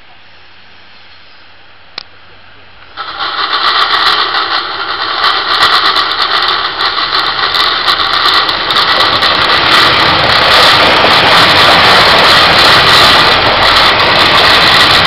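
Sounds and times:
diesel railcar engine: 0.0s - 15.0s
wheels on rails clicking: 3.0s - 15.0s.

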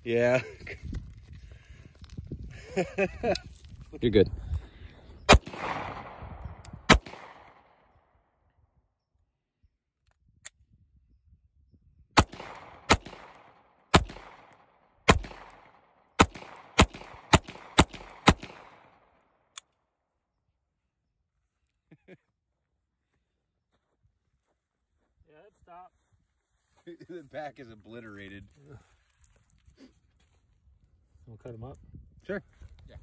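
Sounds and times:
pistol shots with echo: 5.3s - 7.8s, 12.2s - 19.0s.

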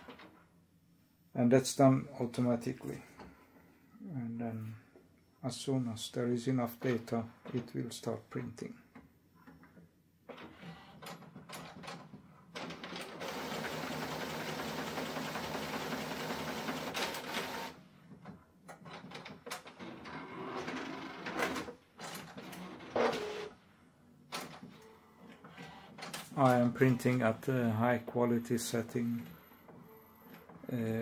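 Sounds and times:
printer mechanism whirring: 12.6s - 17.8s, 18.9s - 23.5s, 24.3s - 27.5s.

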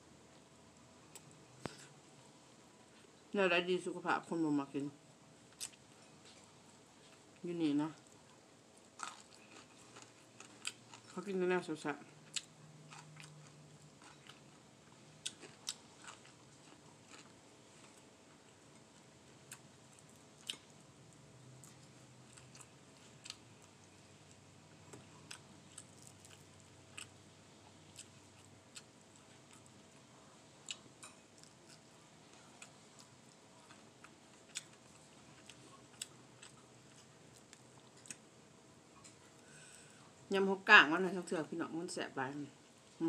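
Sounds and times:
chewing and mouth sounds: 8.0s - 11.3s, 12.2s - 14.6s, 15.2s - 18.1s, 19.5s - 20.8s, 27.9s - 29.9s, 30.6s - 38.2s.

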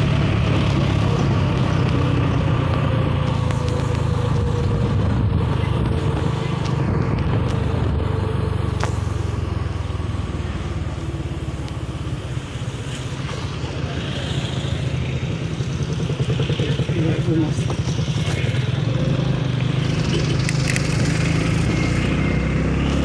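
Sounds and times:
wind rumble on microphone: 0.0s - 9.2s
motorcycle engine running: 0.0s - 23.0s.

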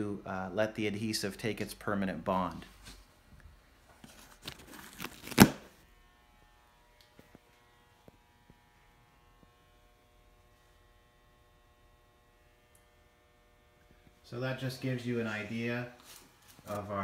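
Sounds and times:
faint electrical hum: 0.0s - 17.0s.

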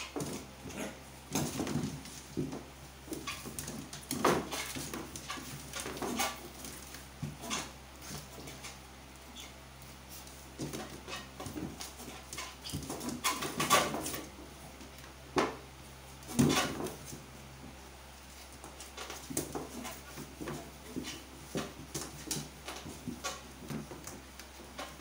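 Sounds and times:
dog noises: 0.0s - 1.2s
dogs scuffling on board floor: 0.0s - 15.6s, 16.2s - 25.0s.

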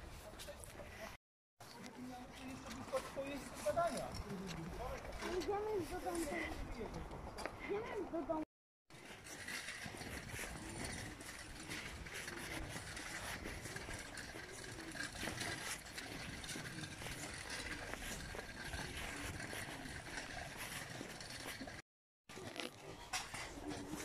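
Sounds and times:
footsteps on paving: 8.9s - 21.8s.

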